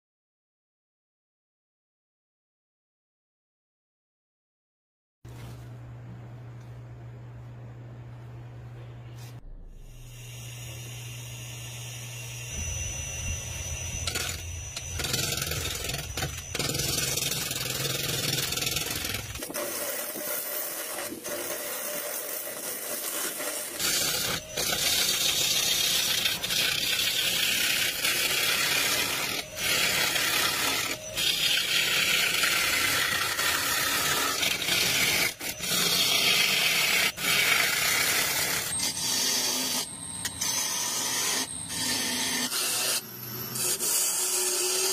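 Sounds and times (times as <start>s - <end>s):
lathe motor hum: 9.9s - 19.4s, 23.4s - 44.9s.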